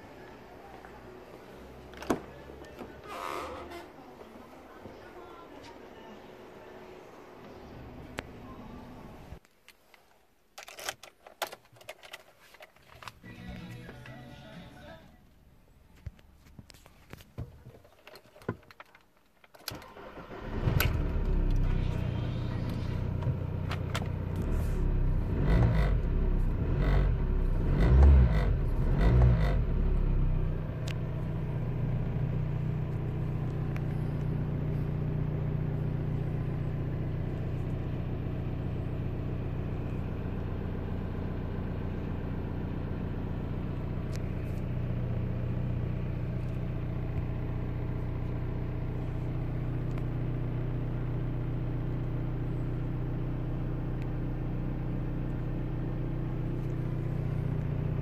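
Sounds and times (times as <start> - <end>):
diesel engine idling: 0.0 - 3.1, 19.9 - 58.0.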